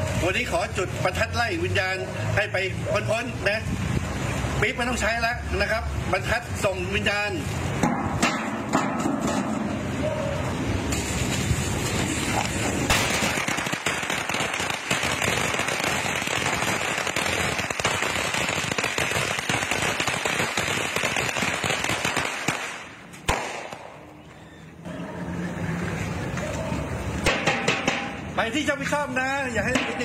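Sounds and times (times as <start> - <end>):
firecrackers crackling: 0.0 - 24.3, 25.4 - 30.0
sharp pop: 22.1 - 24.0.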